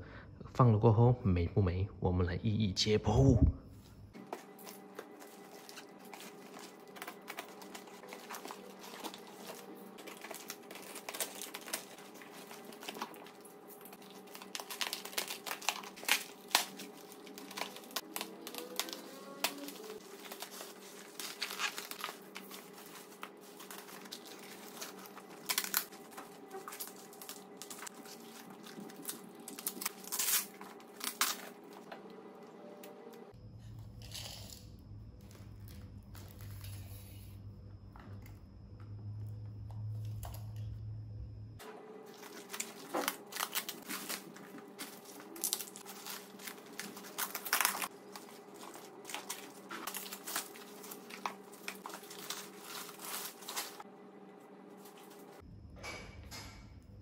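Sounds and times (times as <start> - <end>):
bubble wrap crinkling: 4.2 - 31.9, 42.0 - 53.9, 54.7 - 55.4
sharp tearing: 14.0 - 31.6.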